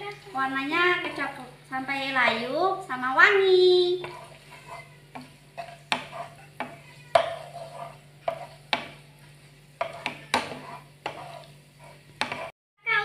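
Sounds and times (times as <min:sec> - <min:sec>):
spatula scraping frying pan: 0:00.7 - 0:01.4, 0:03.4 - 0:12.6.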